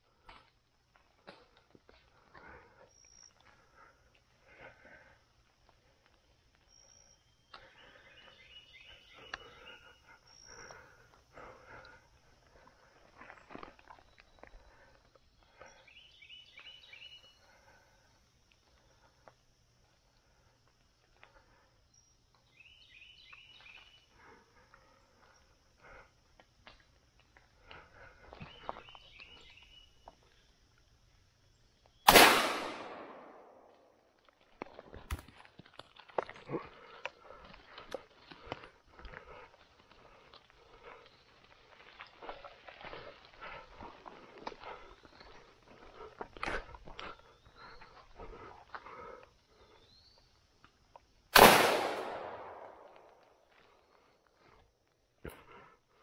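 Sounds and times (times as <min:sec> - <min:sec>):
faint chirps: 0:02.4 - 0:26.2, 0:27.5 - 0:32.1, 0:47.1 - 0:50.7
shotgun shot echoing: 0:32.1 - 0:33.6, 0:51.4 - 0:53.0.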